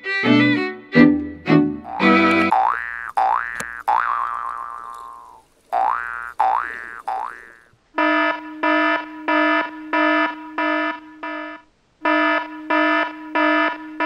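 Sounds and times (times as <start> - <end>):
alarm buzzer beeping: 8.0 - 14.0.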